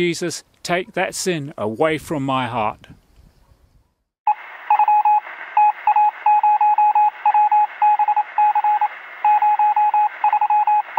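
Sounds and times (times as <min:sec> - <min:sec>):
morse code beeping: 0:04.3 - 0:10.9
radio hiss: 0:04.3 - 0:10.9.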